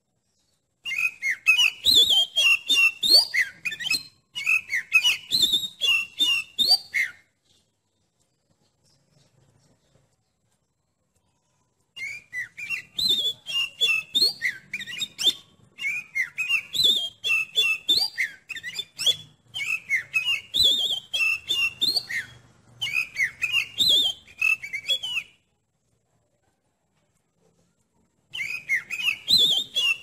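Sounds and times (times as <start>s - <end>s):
bird singing whistled notes: 0.2s - 7.6s, 11.9s - 25.5s, 28.3s - 30.0s.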